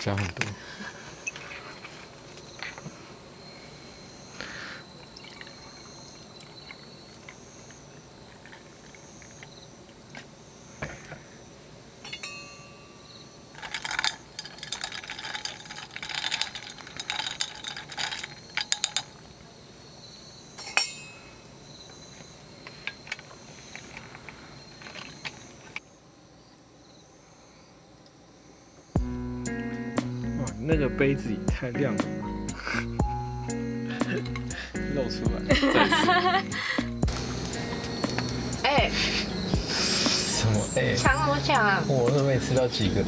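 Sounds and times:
drink poured over ice: 5.0 - 6.8
spoon clinking against ice and glass: 12.1 - 19.1.

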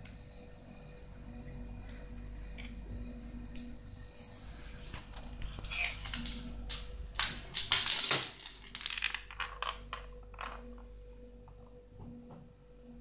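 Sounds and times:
walnut rolling on tile floor: 4.9 - 12.1.

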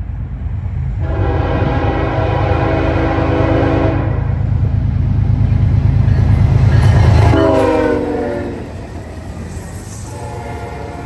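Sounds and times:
diesel locomotive engines rumbling: 0.0 - 11.0
locomotive horn blast: 1.0 - 4.4, 7.3 - 8.7, 10.1 - 11.0.

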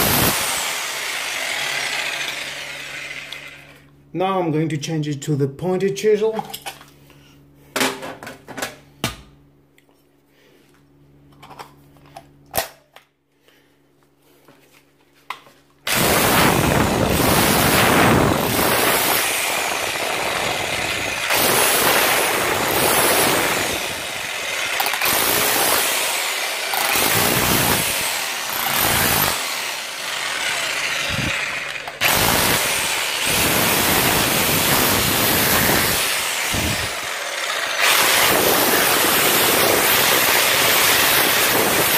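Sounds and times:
hammer drill chiselling wall: 0.0 - 3.8, 15.9 - 41.9.

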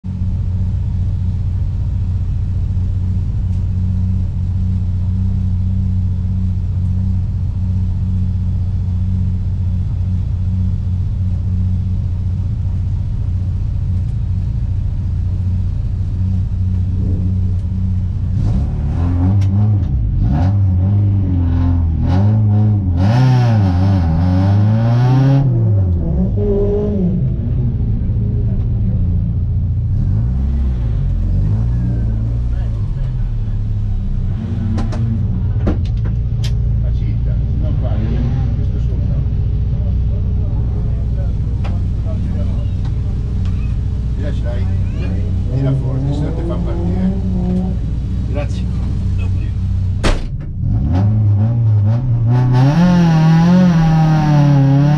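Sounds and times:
car engine idling and revving: 0.0 - 54.9.

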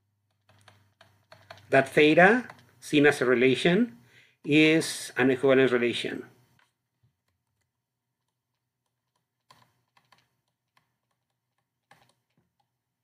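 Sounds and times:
stylus tapping on tablet screen: 0.2 - 1.7, 6.6 - 12.8.

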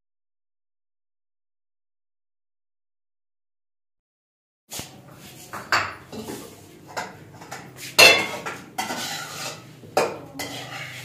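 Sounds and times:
dishes and utensils clattering: 4.8 - 11.0.

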